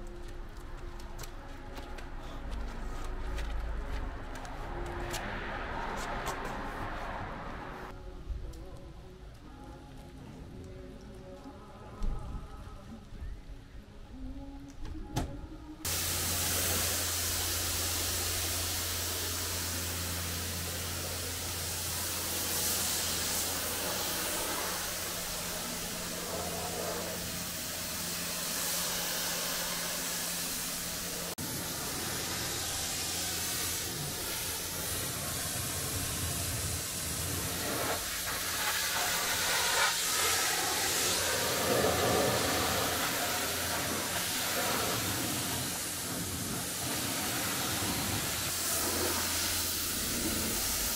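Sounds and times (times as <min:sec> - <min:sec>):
pressure washer spraying water: 0:15.9 - 0:50.9.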